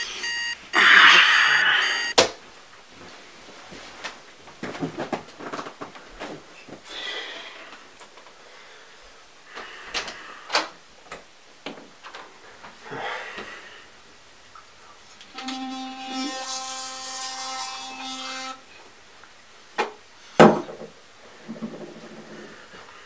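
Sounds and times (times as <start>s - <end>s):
footsteps crossing a room: 2.4s - 6.9s.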